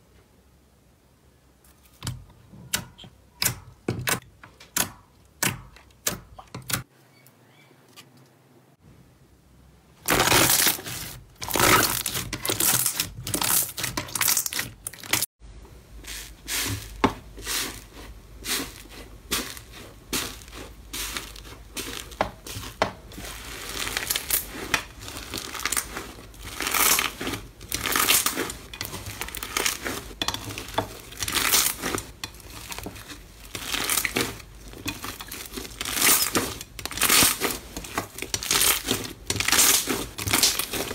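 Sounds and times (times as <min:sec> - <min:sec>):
slime crackling and crunching: 0:10.0 - 0:15.3, 0:16.6 - 0:40.9.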